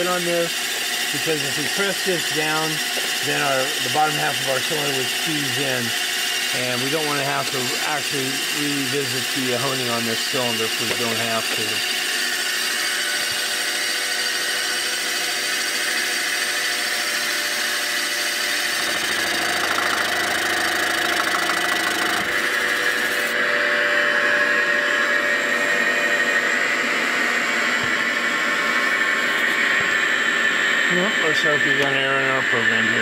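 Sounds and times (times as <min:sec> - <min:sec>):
milling machine whine: 0:00.0 - 0:33.0.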